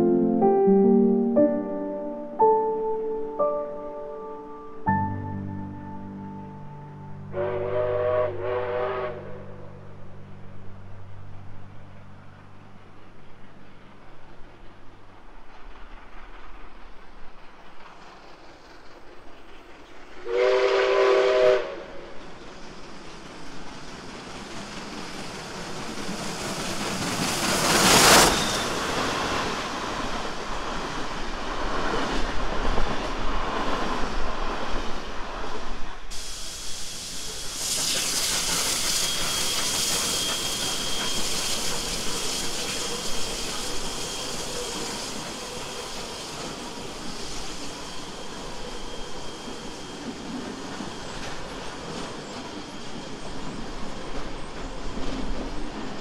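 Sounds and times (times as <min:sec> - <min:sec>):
steam locomotive passing: 0:00.0 - 0:56.0
train carriages rumbling: 0:03.2 - 0:56.0
steam whistle: 0:05.0 - 0:10.1, 0:20.2 - 0:22.2, 0:36.1 - 0:53.7.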